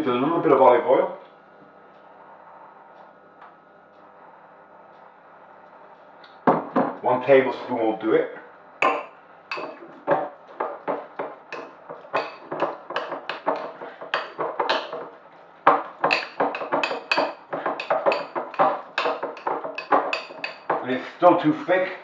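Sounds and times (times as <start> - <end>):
spoon knocking and scraping bowl: 8.8 - 20.8.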